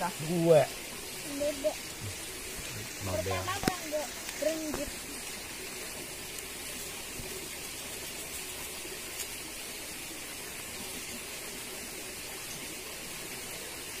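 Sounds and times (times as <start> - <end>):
small river flowing: 0.0 - 14.0.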